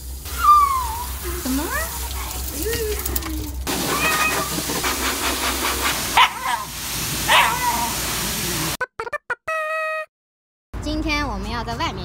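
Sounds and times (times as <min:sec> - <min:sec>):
pet dryer hissing: 0:00.0 - 0:08.8
dog yowling and whining: 0:00.2 - 0:04.6, 0:06.2 - 0:08.1.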